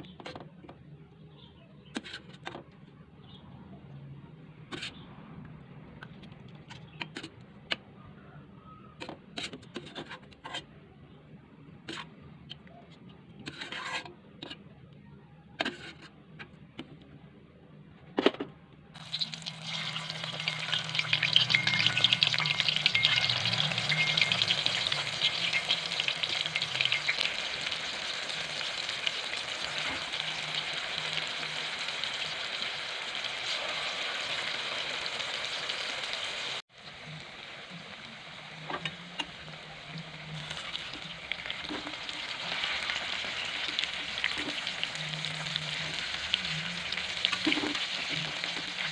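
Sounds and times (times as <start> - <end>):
deep-frying sizzle: 19.0 - 48.9.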